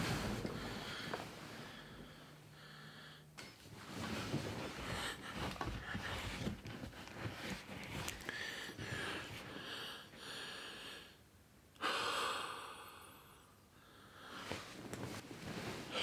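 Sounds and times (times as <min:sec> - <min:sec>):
soft rustling: 0:00.0 - 0:02.0, 0:03.6 - 0:09.6, 0:14.3 - 0:16.0
faint steady hum: 0:00.0 - 0:16.0
man breathing heavily: 0:00.5 - 0:03.3, 0:08.2 - 0:11.2, 0:11.8 - 0:14.6.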